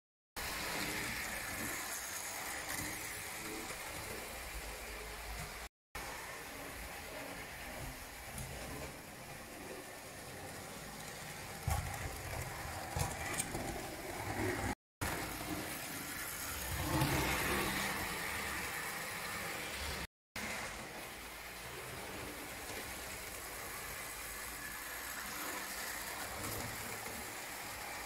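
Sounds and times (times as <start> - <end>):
toy tram whirring on metal track: 0.4 - 28.0
wheels clicking: 9.6 - 18.0.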